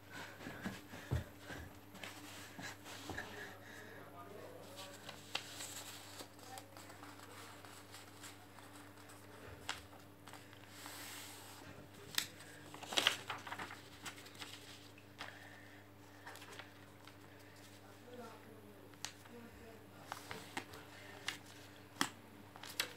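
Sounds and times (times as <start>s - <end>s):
paper rustling and crinkling: 4.6s - 15.4s, 16.1s - 17.8s, 20.0s - 22.9s
paper crackling: 4.7s - 15.4s, 16.1s - 17.8s, 20.0s - 22.9s.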